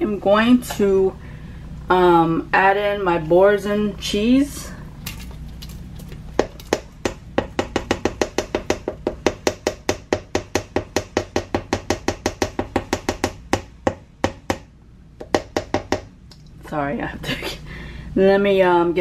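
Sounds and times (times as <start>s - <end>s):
utensil knocking on metal pot: 6.4s - 14.6s.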